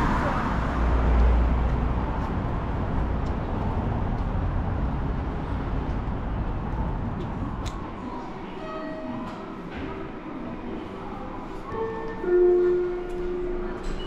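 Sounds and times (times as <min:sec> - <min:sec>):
road traffic rumble: 0:00.0 - 0:08.5.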